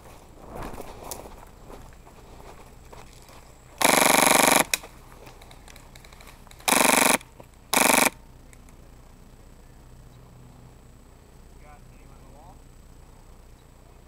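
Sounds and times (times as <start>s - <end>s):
airsoft rifle firing bursts: 3.8s - 4.8s, 6.6s - 8.2s.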